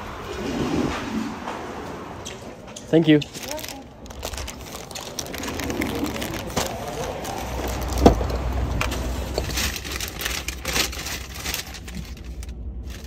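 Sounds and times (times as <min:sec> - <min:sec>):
paper rustling and crinkling: 0:03.3 - 0:13.0.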